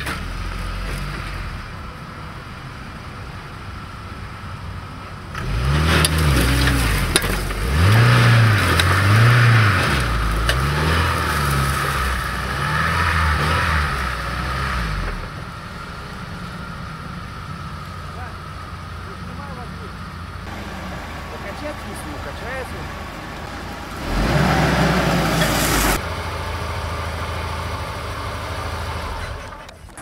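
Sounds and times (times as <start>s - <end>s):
suv engine revving hard: 5.3s - 15.3s, 20.5s - 26.1s.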